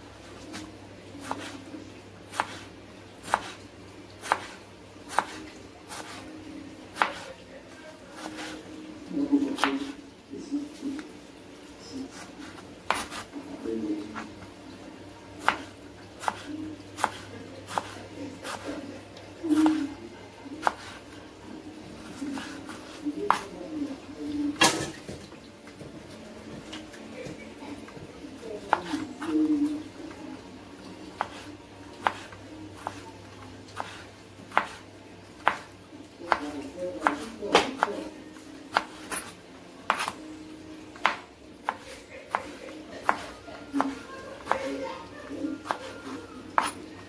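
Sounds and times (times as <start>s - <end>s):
knife slicing tomato on board: 0.3s - 1.7s, 2.3s - 6.3s, 6.9s - 7.4s, 8.1s - 8.7s, 9.4s - 10.0s, 12.1s - 13.4s, 15.4s - 19.9s, 20.5s - 21.2s, 22.0s - 23.8s, 28.6s - 29.7s, 31.1s - 34.8s, 35.4s - 38.1s, 38.7s - 40.2s, 41.0s - 46.9s
knife striking cutting board: 39.9s - 40.2s, 46.6s - 46.8s.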